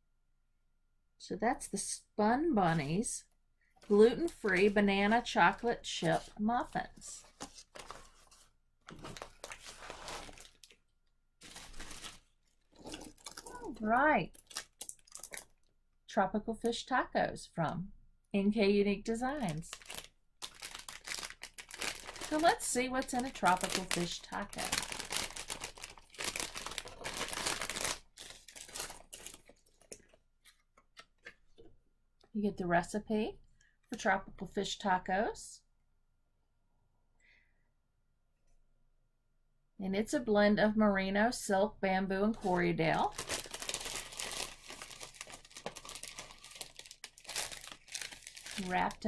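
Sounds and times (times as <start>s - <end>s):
packaging crinkling: 3.8s - 15.7s, 19.3s - 31.7s, 43.0s - 49.0s.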